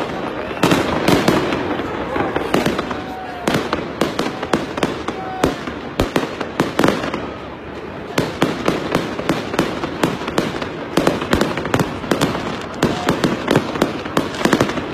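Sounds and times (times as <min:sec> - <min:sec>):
fireworks popping and crackling: 0:00.0 - 0:14.9.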